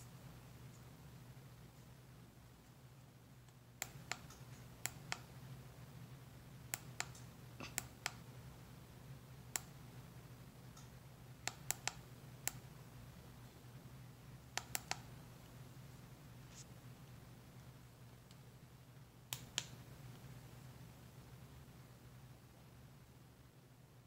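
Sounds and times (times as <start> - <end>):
ceiling fan motor hum: 0.0 - 24.0
remote buttons clicking: 3.8 - 5.3, 11.5 - 12.7, 14.6 - 15.2.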